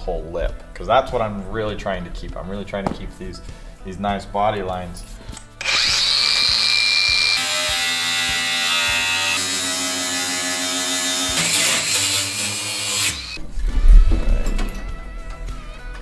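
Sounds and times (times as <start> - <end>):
angle grinder cutting sheet metal: 5.6 - 13.4.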